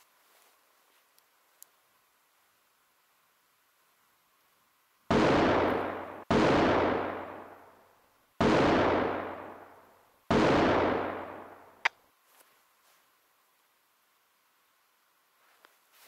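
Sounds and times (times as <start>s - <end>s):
gunshots with long echo: 5.1s - 11.9s.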